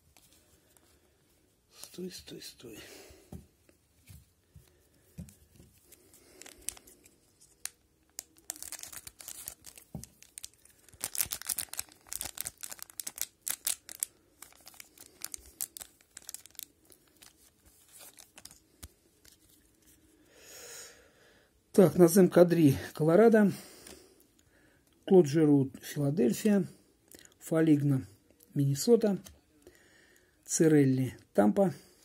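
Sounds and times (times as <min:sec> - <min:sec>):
wrapper tearing and crinkling: 0:05.9 - 0:18.7.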